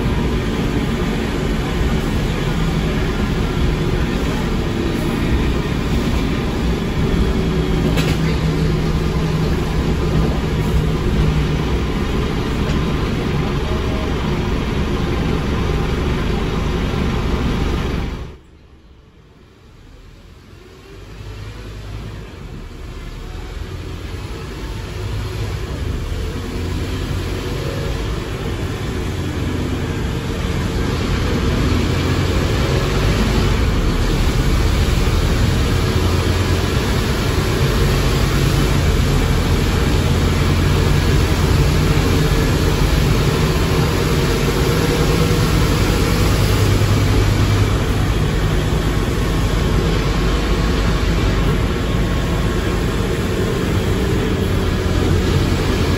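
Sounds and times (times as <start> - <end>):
bus gearbox and engine running: 0.0 - 18.3.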